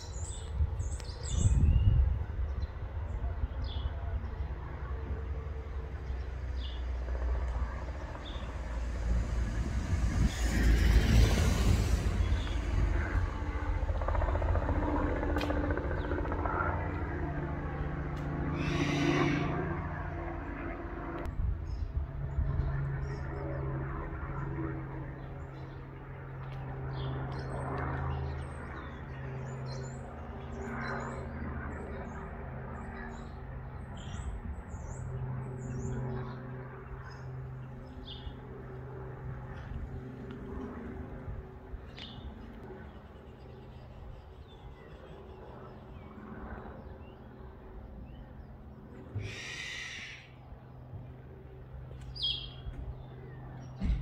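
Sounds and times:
helicopter rotor drone: 0.0 - 54.0
small birds chirping: 52.0 - 54.0.

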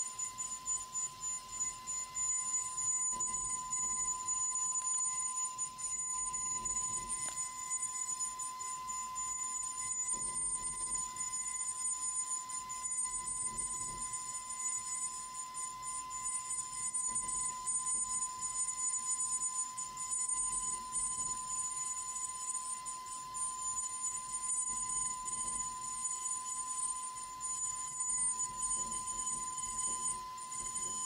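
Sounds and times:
spindle whine: 0.0 - 15.2.

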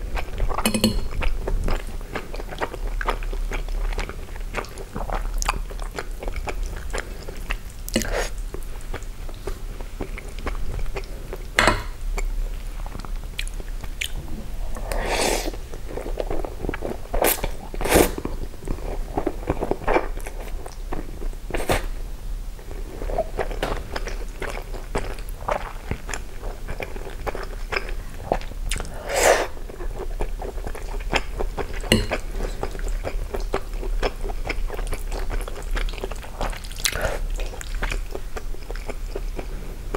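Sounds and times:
wet chewing and mouth clicks: 0.2 - 11.5, 12.2 - 14.2, 29.7 - 39.5.

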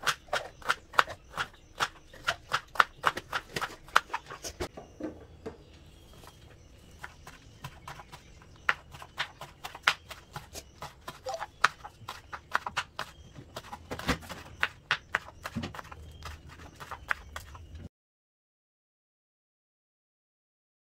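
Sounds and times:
knife chopping on wooden board: 0.0 - 4.7, 6.9 - 17.6.

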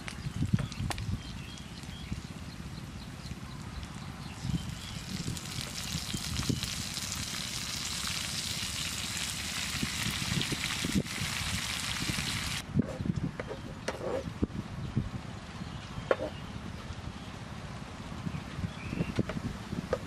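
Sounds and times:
food sizzling in a frying pan: 4.8 - 12.6.

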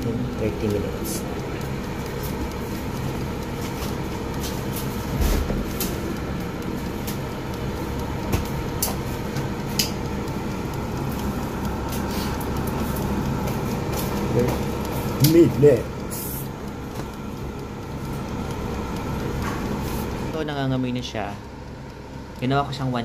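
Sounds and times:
air fryer fan whirring: 0.0 - 23.0
sharp clicks: 5.6 - 22.5.

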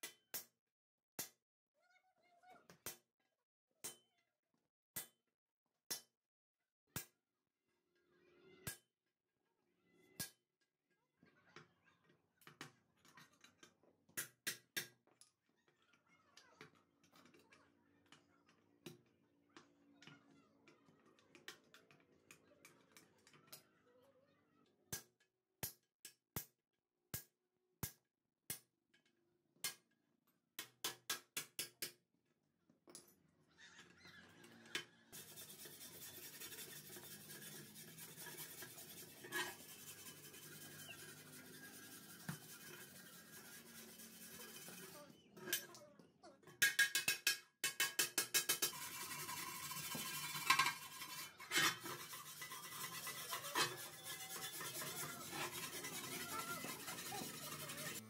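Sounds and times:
knife scraping rust off metal: 35.2 - 45.7, 46.7 - 58.0
hammer tapping metal blade: 46.6 - 58.0.

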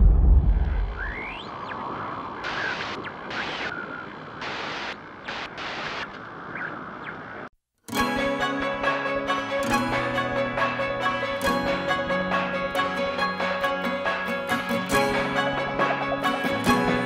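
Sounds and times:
deep boom: 0.0 - 1.4
rising and falling whistles: 0.9 - 1.6
steady hiss with bursts: 1.8 - 6.9.

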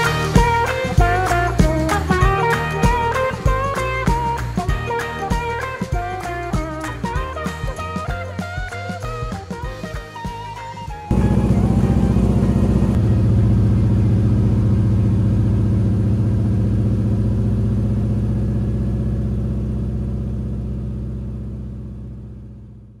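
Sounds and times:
plane engine and propeller: 11.1 - 22.2.

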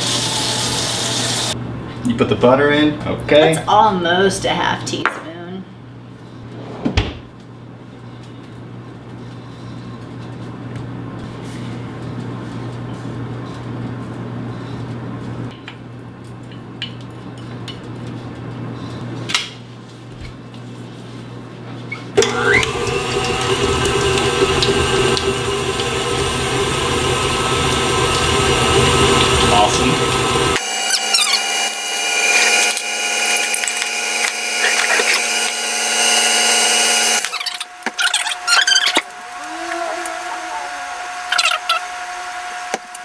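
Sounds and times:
stand mixer whirring: 0.0 - 1.6, 22.2 - 37.8.

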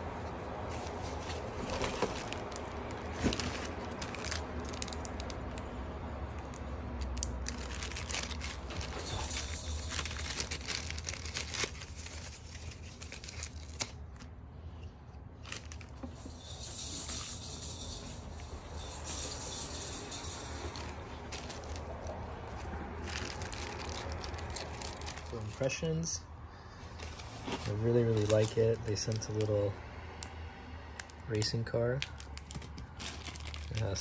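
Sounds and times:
plastic and paper crinkling: 0.5 - 5.7, 6.3 - 14.3, 15.4 - 16.2, 20.2 - 25.8, 26.9 - 29.7, 31.0 - 34.0.

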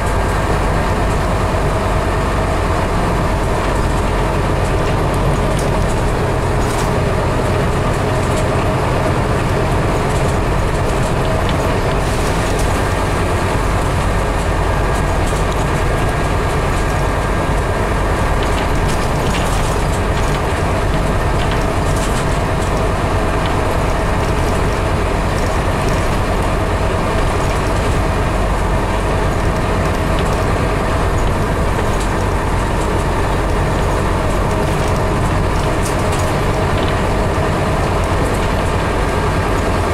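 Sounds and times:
bus diesel engine and road noise: 0.0 - 39.9.

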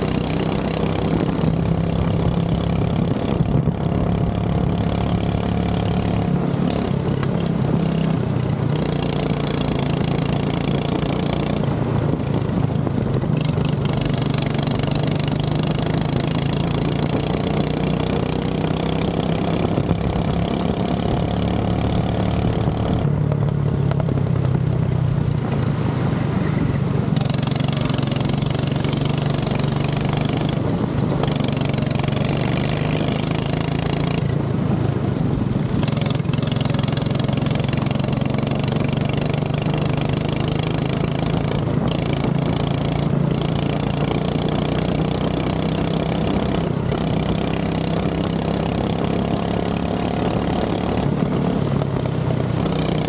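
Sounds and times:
go-kart engine running: 0.0 - 53.0.

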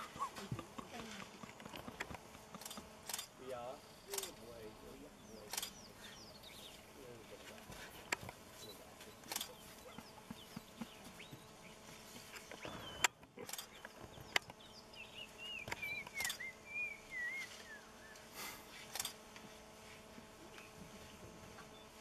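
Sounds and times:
sharp clicks: 1.3 - 3.3, 4.1 - 4.4, 5.5 - 5.8, 9.2 - 9.6, 15.6 - 16.4.

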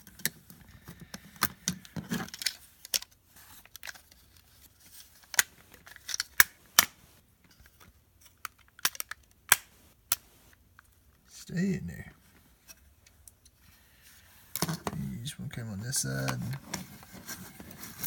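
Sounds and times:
plastic toy parts clicking: 5.3 - 6.9, 8.2 - 9.6.

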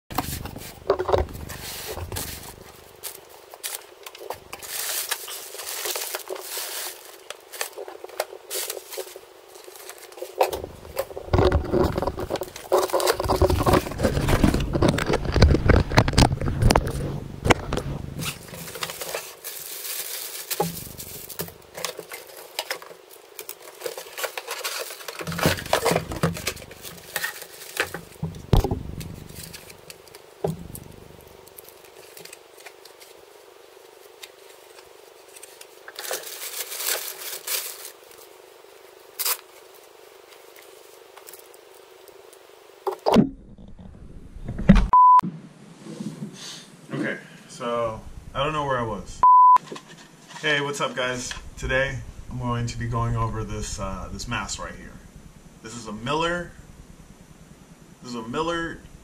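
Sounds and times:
cardboard box flaps scraping: 0.1 - 2.8
bubble wrap crinkling: 0.1 - 42.4
low thumps: 28.2 - 29.6.

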